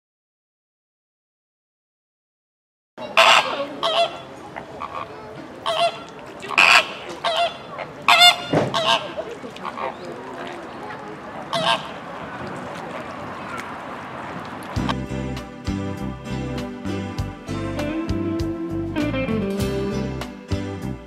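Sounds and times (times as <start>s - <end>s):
flamingos honking: 3.0s - 15.0s
pond background hum: 3.0s - 15.0s.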